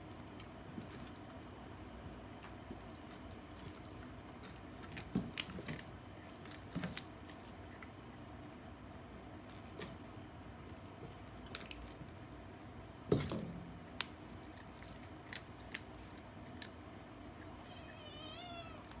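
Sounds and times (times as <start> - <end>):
kitten chewing dry kibble: 2.4 - 8.2, 14.0 - 17.7
kitten mewing: 17.4 - 19.0.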